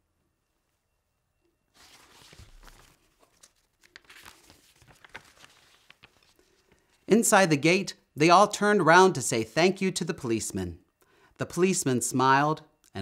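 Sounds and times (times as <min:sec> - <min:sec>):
paper page rustling: 0:01.7 - 0:07.1.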